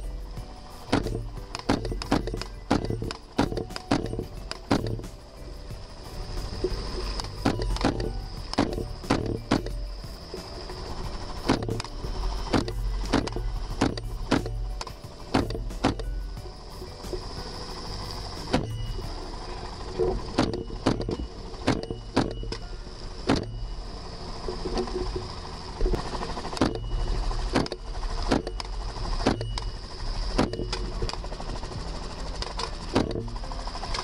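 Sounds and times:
helicopter rotor drone: 0:00.0 - 0:34.0.

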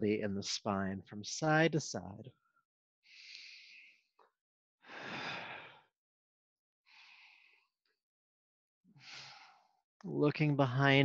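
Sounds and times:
man breathing deeply: 0:03.1 - 0:04.1, 0:04.8 - 0:05.9, 0:06.9 - 0:07.7, 0:09.0 - 0:09.8.

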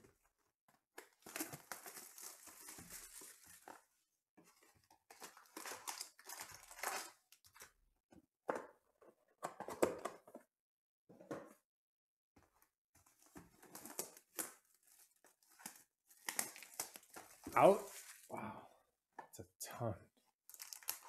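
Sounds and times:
foil packs crinkling: 0:01.2 - 0:03.8, 0:05.1 - 0:07.2, 0:13.7 - 0:18.3, 0:20.5 - 0:21.0.

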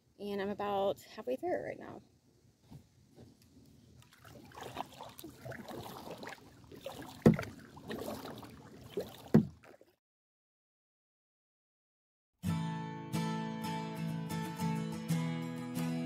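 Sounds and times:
paddle splashing in water: 0:04.0 - 0:10.0
sharp knocks: 0:07.2 - 0:07.5, 0:09.3 - 0:09.6.

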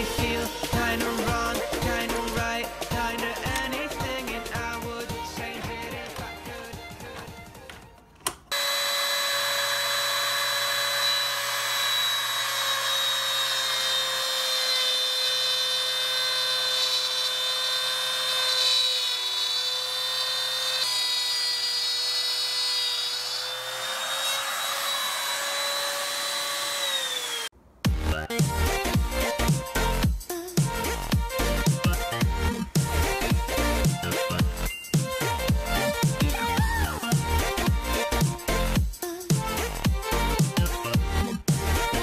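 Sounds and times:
router bit cutting wood: 0:08.5 - 0:27.5
router motor whining: 0:08.5 - 0:27.5.

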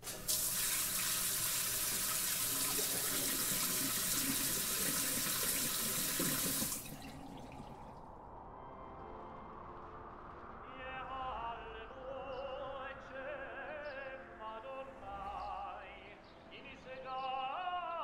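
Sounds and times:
water spray running: 0:00.0 - 0:07.9.

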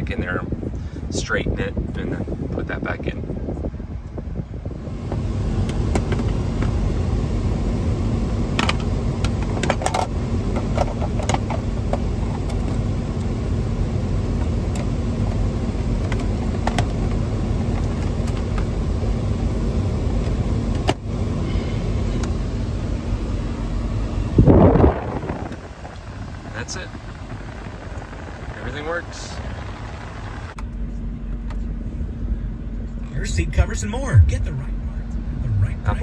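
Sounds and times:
car cabin low hum: 0:03.4 - 0:36.0.

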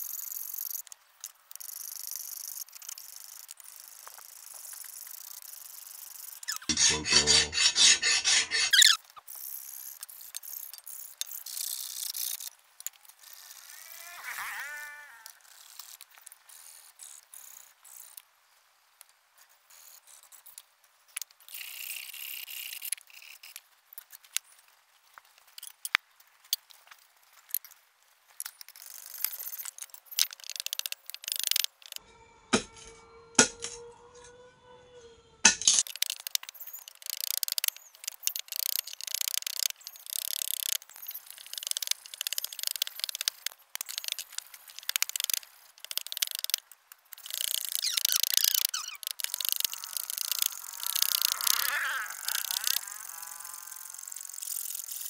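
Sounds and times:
blade scraping wood: 0:06.5 - 0:09.0.

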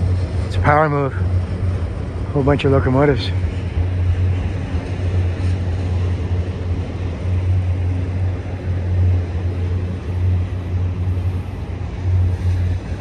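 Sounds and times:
diesel locomotives engine drone: 0:00.0 - 0:13.0.

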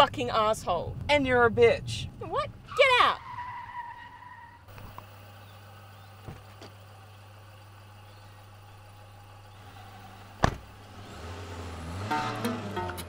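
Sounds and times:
car engine idling and revving: 0:00.0 - 0:13.0
car door slamming: 0:10.4 - 0:10.8
music: 0:12.1 - 0:13.0.

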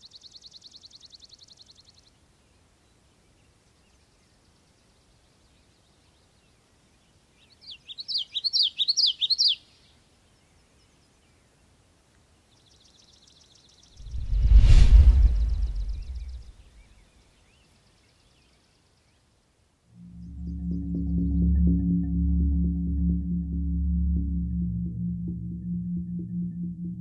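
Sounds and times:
loud deep rumble: 0:14.0 - 0:16.7, 0:20.0 - 0:27.0.

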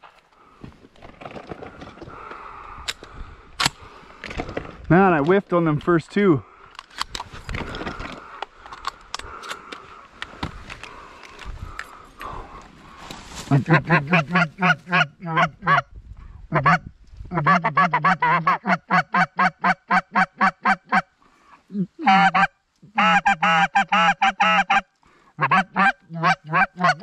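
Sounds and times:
goose honking: 0:13.6 - 0:15.9, 0:16.5 - 0:21.1, 0:22.0 - 0:27.0.

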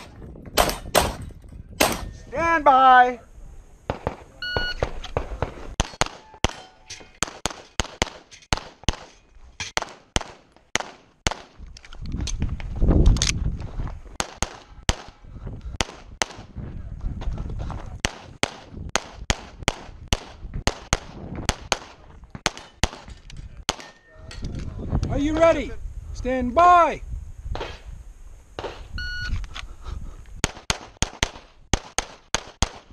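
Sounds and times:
rapid pistol shots: 0:07.2 - 0:09.1, 0:09.8 - 0:11.6, 0:14.2 - 0:15.2, 0:18.0 - 0:23.1, 0:30.4 - 0:32.9.

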